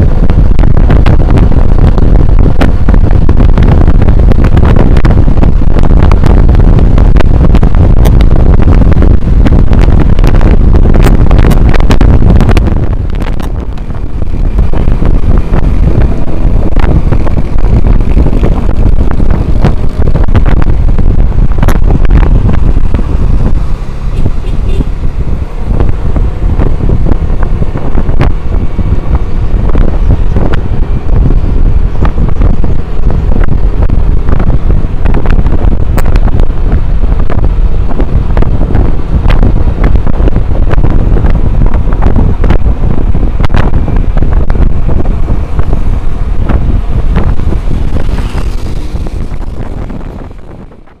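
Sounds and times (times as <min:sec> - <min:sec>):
road noise: 0:00.0 - 0:51.0
wind buffeting microphone: 0:00.0 - 0:51.0
scooter engine running: 0:45.2 - 0:51.0.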